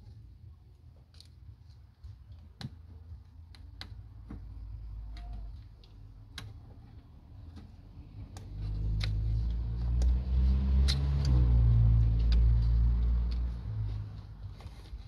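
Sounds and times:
vehicle engine rumble: 4.1s - 15.0s.

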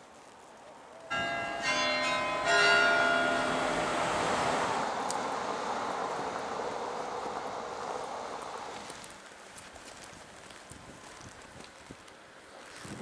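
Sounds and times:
carillon bells ringing: 1.1s - 4.6s.

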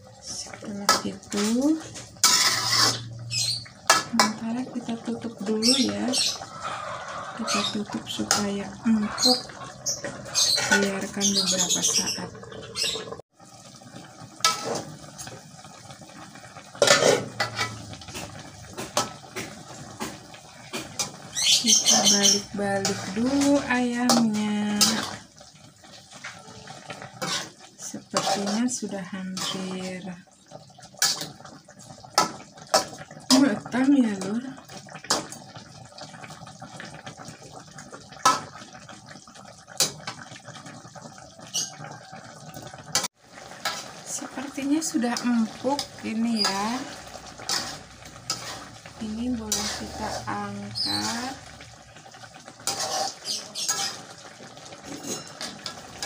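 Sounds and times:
broth simmering: 0.0s - 56.0s
spatula scraping and knocking wok: 0.8s - 3.1s, 5.8s - 13.2s, 14.4s - 15.3s, 16.8s - 25.3s, 26.2s - 30.0s, 31.0s - 31.4s, 42.9s - 51.6s, 52.5s - 56.0s.

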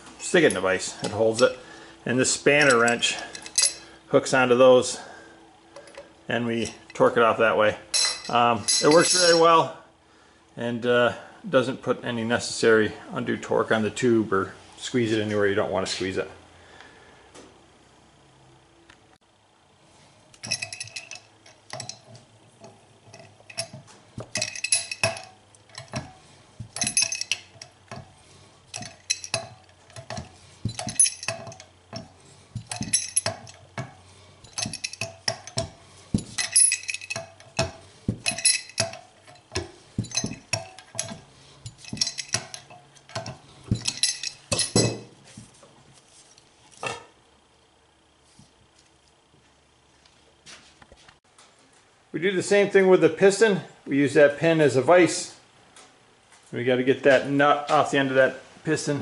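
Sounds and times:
steel parts clinking: 0.2s - 1.6s, 2.3s - 3.9s, 7.9s - 9.6s, 20.3s - 45.2s.

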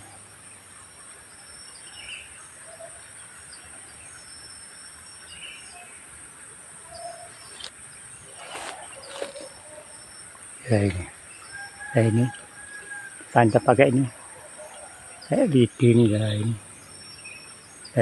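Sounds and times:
bird chirps: 6.8s - 18.0s
low bird calls: 6.8s - 18.0s
sharp rustles: 7.5s - 9.7s.

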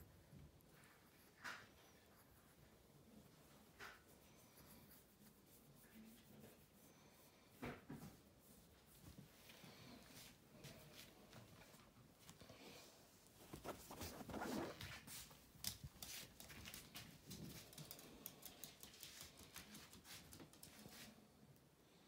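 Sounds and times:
dog claws clicking on floor: 15.6s - 20.9s.

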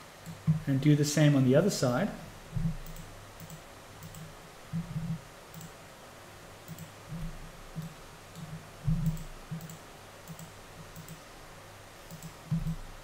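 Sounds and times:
computer mouse clicking: 2.6s - 5.8s, 6.7s - 11.2s, 12.1s - 12.8s.

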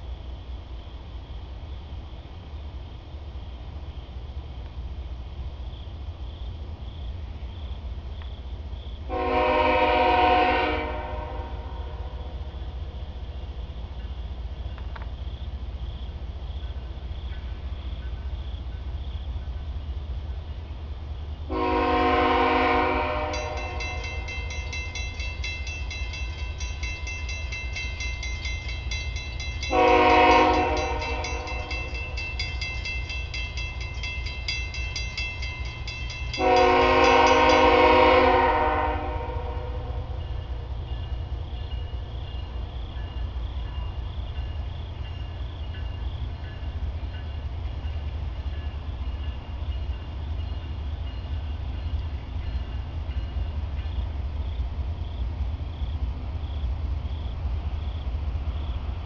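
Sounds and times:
train rumbling: 0.0s - 59.0s
locomotive air horn blasts: 9.1s - 12.2s, 21.5s - 24.0s, 29.7s - 31.5s, 36.4s - 40.0s
bell ringing: 23.3s - 37.6s.

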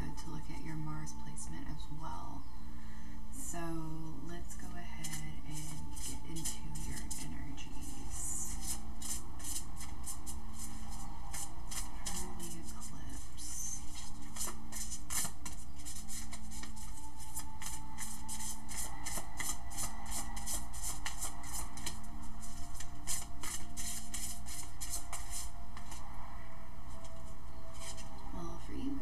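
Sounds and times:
faint steady background tone: 0.0s - 29.0s
cards being shuffled by hand: 5.0s - 26.0s, 26.9s - 28.2s.

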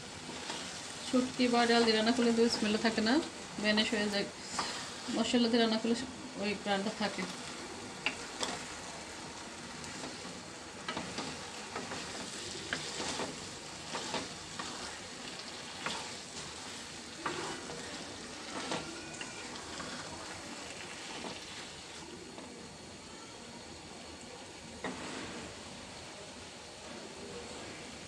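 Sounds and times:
spatula scraping a frying pan: 0.0s - 5.4s, 6.8s - 22.1s, 24.8s - 25.6s
food sizzling: 0.0s - 28.0s.

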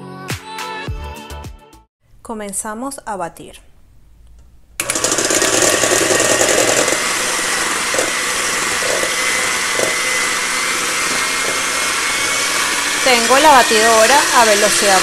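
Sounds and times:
electric hand mixer whipping: 4.8s - 15.0s.

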